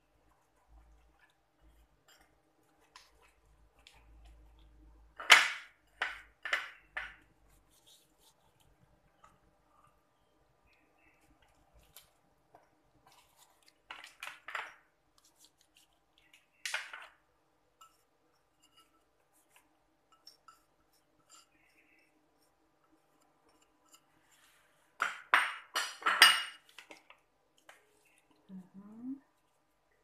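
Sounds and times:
ceramic bowl and plate clinking: 25.1s - 26.7s.

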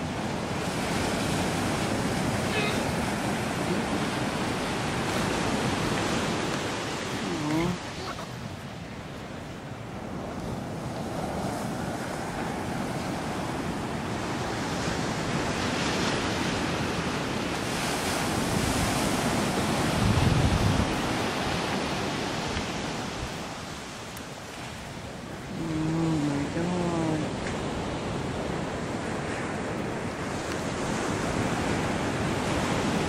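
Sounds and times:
wind buffeting microphone: 0.0s - 23.5s
surf breaking on beach: 0.0s - 23.9s.

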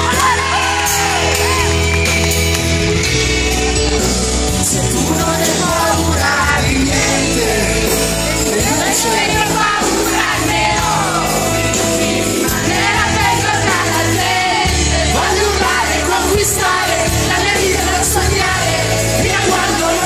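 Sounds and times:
drums: 0.0s - 20.0s
electric guitar: 0.0s - 20.0s
live pop-rock band: 0.0s - 20.0s
person singing: 4.6s - 11.5s.

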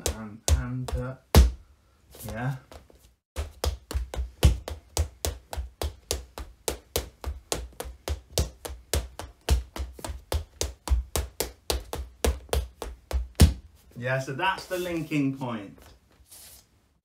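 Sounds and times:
tap shoes on hard floor: 2.7s - 13.7s.

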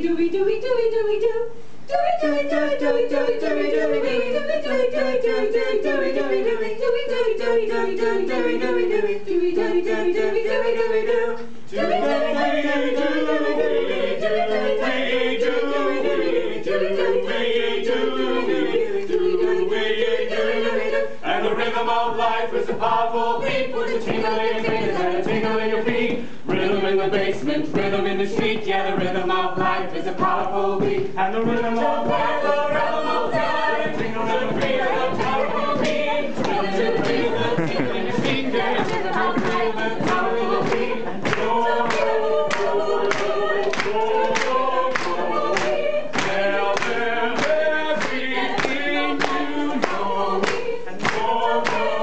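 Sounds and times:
a cappella group singing harmony: 0.0s - 52.0s
sharp rhythmic beats: 21.3s - 52.0s.

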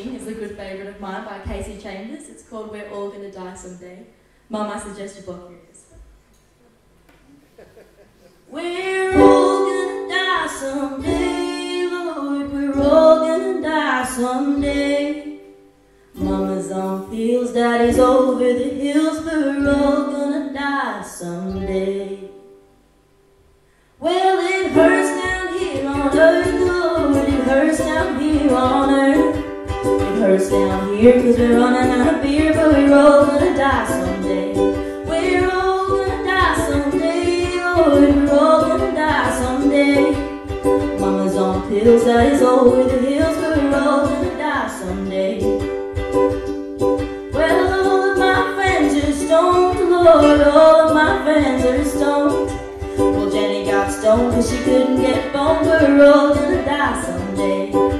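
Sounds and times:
woman singing: 8.5s - 15.5s, 16.2s - 22.5s, 24.0s - 45.7s, 47.3s - 57.9s
ukulele strumming: 8.5s - 57.9s.

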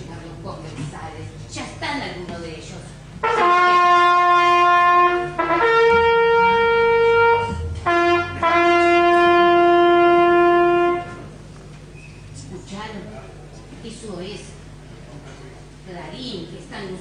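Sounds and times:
bugle call: 3.2s - 11.3s.

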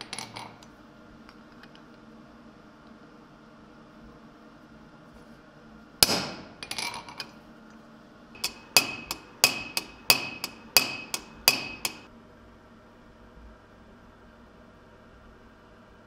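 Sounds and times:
hammer striking metal: 6.0s - 6.6s, 8.4s - 12.1s
light hammer taps ringing: 8.4s - 12.1s.

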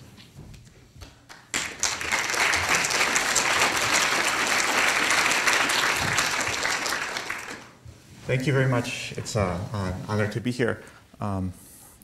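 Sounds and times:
audience applauding: 1.3s - 7.8s.

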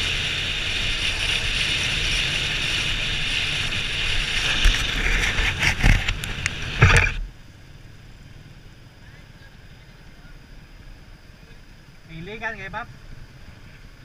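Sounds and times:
motorcycle engine running: 0.0s - 12.0s
wind and road noise: 0.0s - 14.0s.

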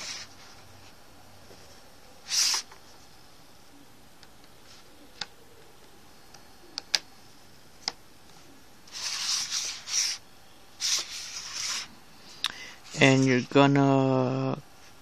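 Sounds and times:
phone rubbing and scraping: 2.2s - 2.8s, 8.9s - 10.2s, 10.8s - 11.9s.

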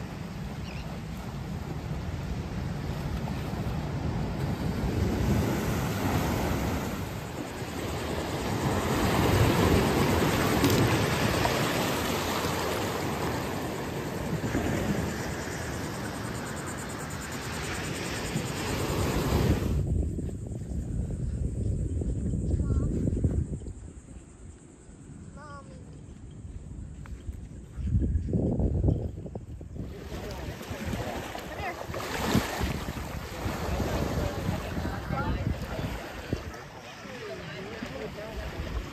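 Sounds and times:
ocean surf breaking: 0.0s - 19.8s, 29.9s - 38.9s
wind rumbling on microphone: 0.0s - 38.9s.

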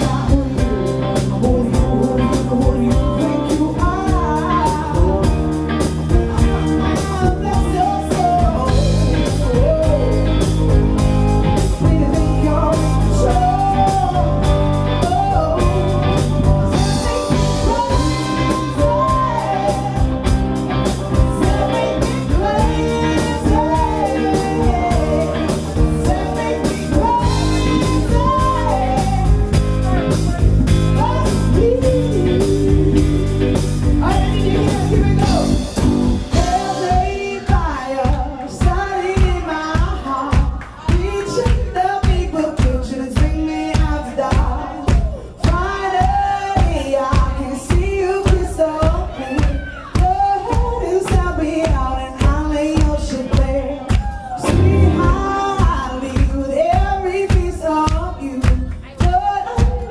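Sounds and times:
bass guitar: 0.0s - 59.9s
drum kit: 0.0s - 59.9s
electric guitar: 0.0s - 59.9s
bending lead melody: 54.4s - 56.0s.

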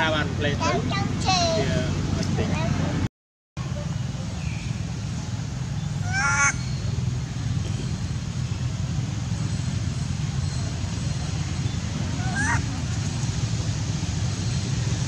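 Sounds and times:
monkey cry: 6.0s - 6.8s, 12.1s - 12.7s.

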